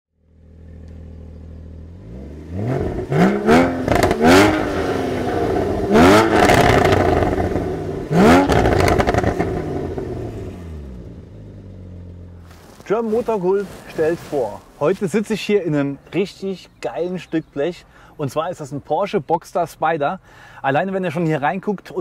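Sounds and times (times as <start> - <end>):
sports car engine revving: 0.2 - 12.8.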